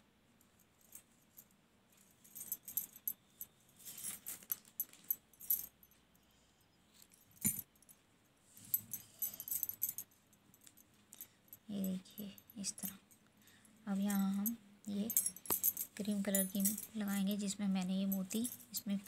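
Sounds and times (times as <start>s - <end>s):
metal tools clicking and jingling: 8.6s - 13.1s, 14.0s - 17.2s, 18.1s - 19.0s.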